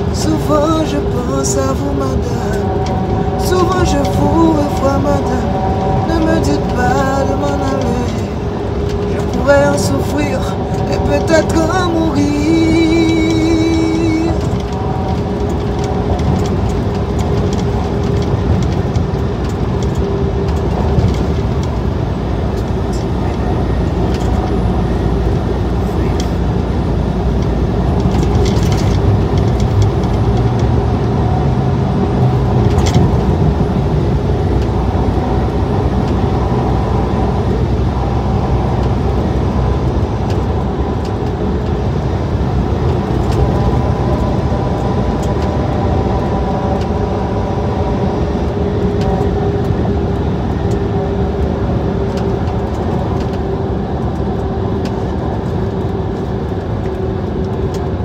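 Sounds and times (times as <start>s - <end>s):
truck cab road and engine rumble: 0.0s - 58.0s.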